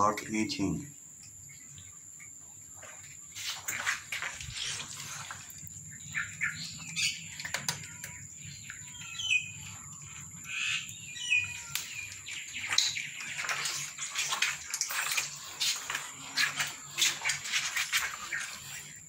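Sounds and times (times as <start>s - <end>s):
small birds chirping: 0.0s - 19.0s
cats crunching dry kibble: 3.4s - 9.0s, 9.6s - 19.0s.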